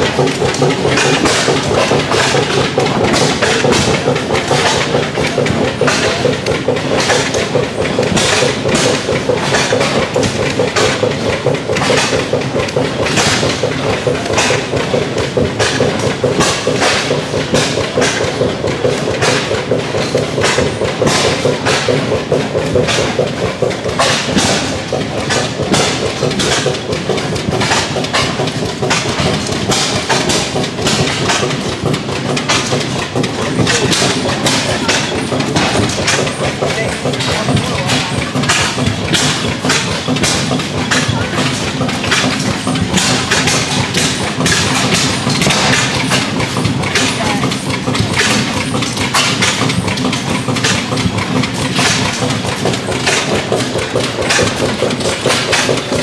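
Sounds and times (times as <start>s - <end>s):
oilfield engine running: 0.0s - 56.0s
pumping jack rod knocking: 0.0s - 56.0s.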